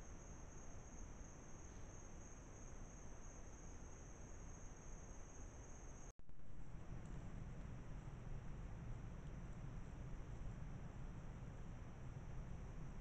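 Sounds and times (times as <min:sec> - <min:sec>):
crickets trilling: 0:00.0 - 0:06.1
low background hiss: 0:00.0 - 0:13.0
low rumbling hiss: 0:00.0 - 0:13.0.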